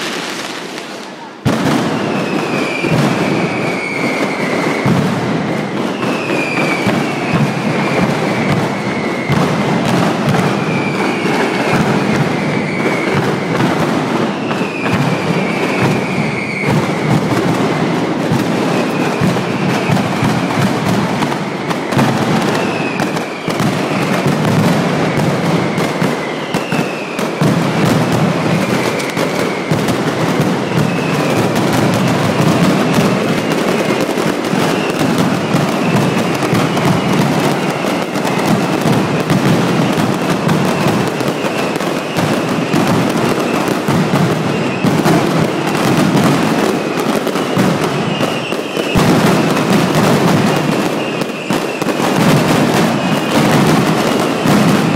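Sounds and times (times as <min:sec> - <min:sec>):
firecrackers banging rapidly: 0:00.0 - 0:54.9
high falling whistles: 0:01.8 - 0:13.6, 0:14.2 - 0:17.8, 0:18.6 - 0:39.4, 0:46.7 - 0:49.5, 0:50.6 - 0:52.2.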